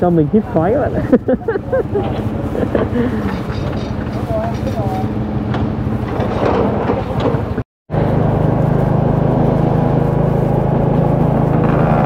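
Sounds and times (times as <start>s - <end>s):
road and wind noise: 0.0s - 12.0s
motorcycle engine running: 7.9s - 12.0s.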